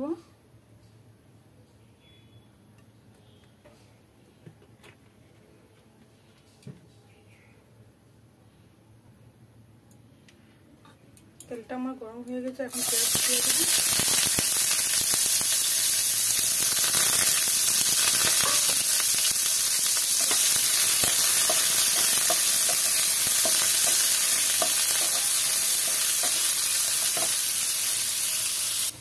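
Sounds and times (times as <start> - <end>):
onions sizzling in hot oil: 12.7 - 29.0
wooden spatula tapping and scraping: 20.2 - 27.4.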